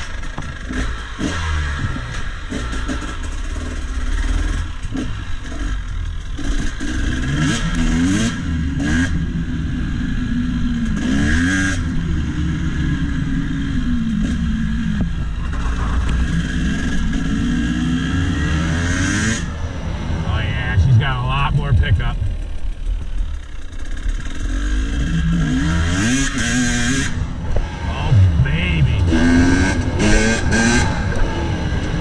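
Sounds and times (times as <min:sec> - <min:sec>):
dirt bike engine accelerating: 0:12.7 - 0:32.0.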